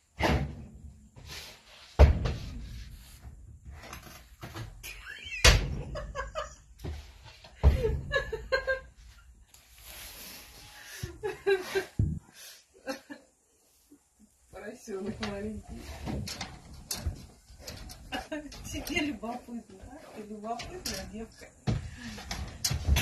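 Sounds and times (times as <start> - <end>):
door banging shut: 5.4 - 6.1.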